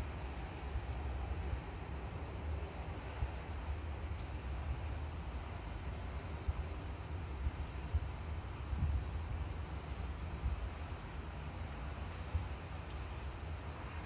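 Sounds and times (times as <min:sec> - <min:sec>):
wind buffeting microphone: 0:06.3 - 0:11.2.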